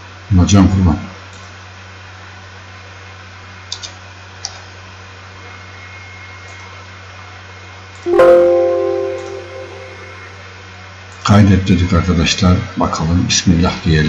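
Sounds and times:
system alert chime: 8.1 - 10.3.

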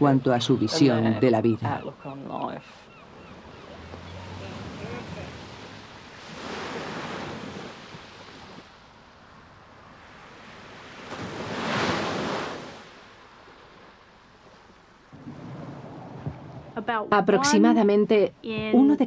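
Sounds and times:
waves washing over shingle: 3.8 - 8.7, 10.0 - 17.0.

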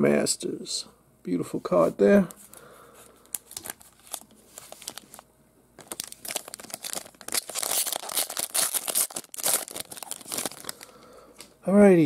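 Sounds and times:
wrapper crinkling and tearing: 3.3 - 5.2, 5.8 - 11.0.

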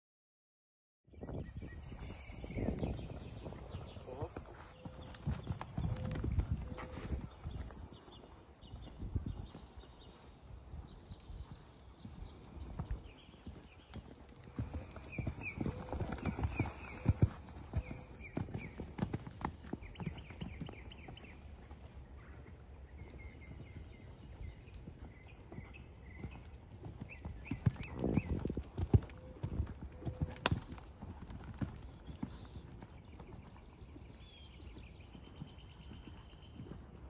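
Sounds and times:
hoofbeats on sand: 1.4 - 37.0.

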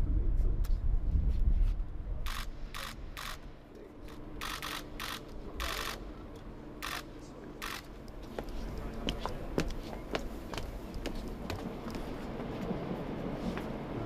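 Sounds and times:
camera shutters clicking: 2.3 - 3.4, 4.1 - 6.0, 6.8 - 7.9.

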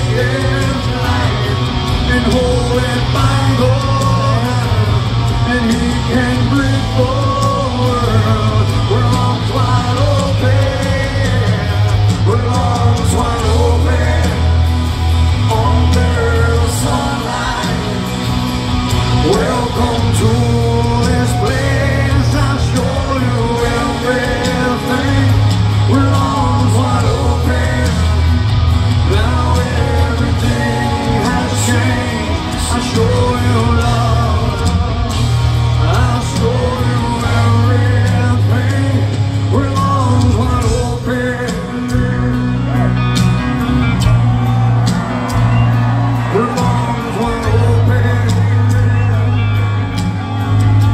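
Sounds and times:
drums: 0.0 - 50.9
electric guitars: 0.0 - 50.9
heavy bass: 0.0 - 50.9
man singing lead vocal: 0.0 - 50.9.

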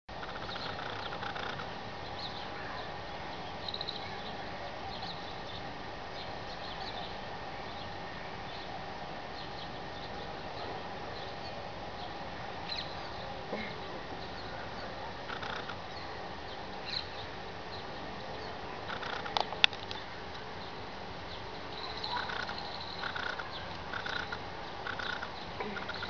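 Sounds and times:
birds chirping: 0.1 - 26.0
steady hum: 0.1 - 26.0.

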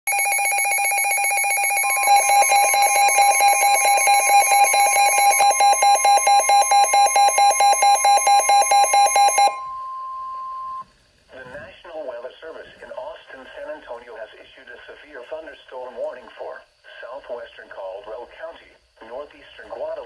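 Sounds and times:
steady high alarm tone: 0.1 - 10.9
rapid electronic beeping: 1.0 - 9.6.

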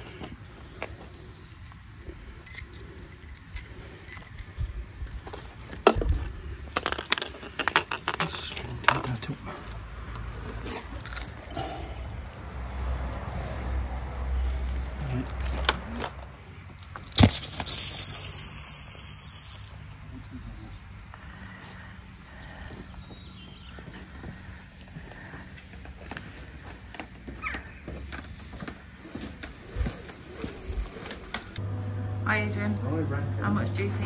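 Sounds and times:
pump and hose rattling: 2.2 - 9.7, 16.8 - 20.0, 26.3 - 31.6.

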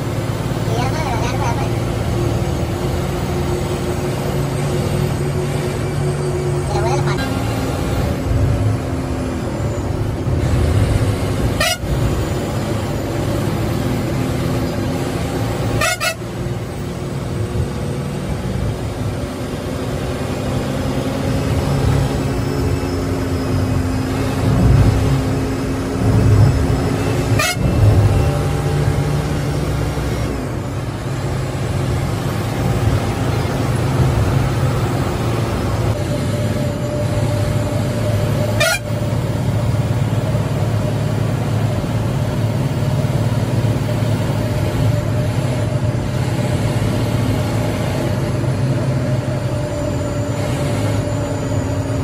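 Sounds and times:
bus engine running: 0.0 - 52.0
vehicle horn: 11.5 - 12.0, 15.6 - 16.4, 27.0 - 27.9, 38.4 - 39.1.

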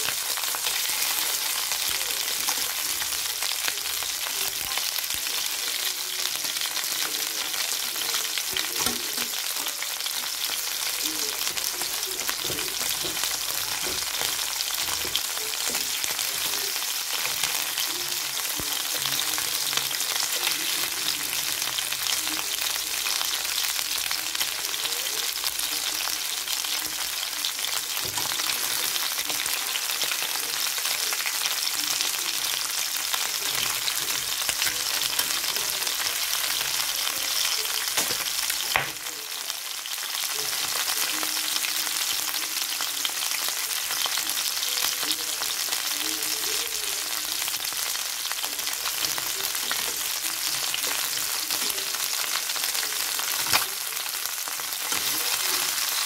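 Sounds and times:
chicken sizzling in a frying pan: 0.0 - 56.0.

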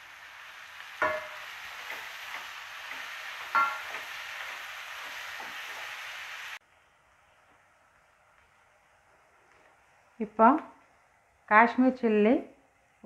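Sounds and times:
vegetables sizzling in a pot: 0.0 - 13.0
spatula clanking on metal pot: 1.0 - 4.2.

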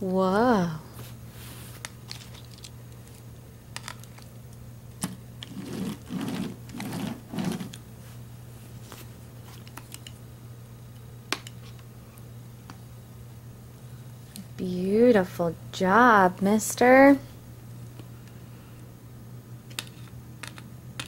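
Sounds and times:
steady low hum: 0.0 - 21.0
rubbing and scraping: 5.4 - 7.8.

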